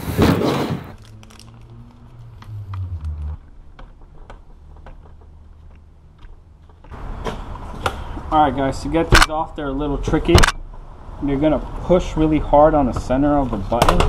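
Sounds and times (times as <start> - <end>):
low handling rumble: 0.9 - 7.0.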